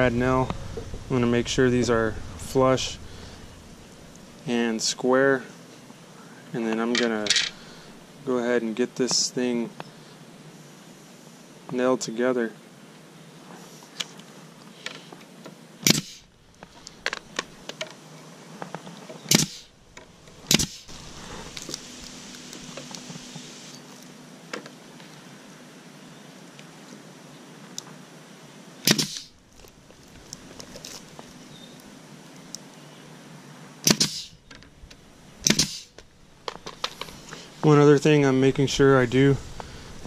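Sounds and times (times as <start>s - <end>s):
nail gun firing: 15.8s - 16.2s, 19.3s - 19.7s, 20.5s - 20.8s, 28.9s - 29.3s, 33.8s - 34.3s, 35.4s - 35.9s.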